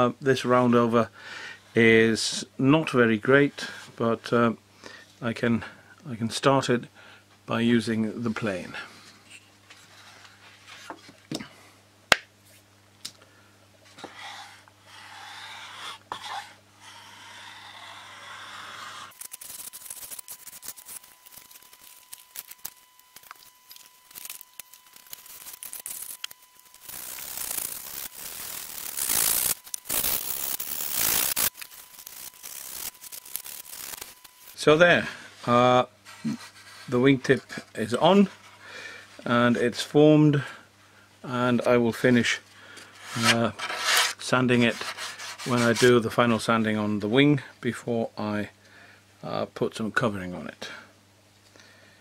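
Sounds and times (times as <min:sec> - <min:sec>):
plane shaving wood: 0:14.0 - 0:21.4.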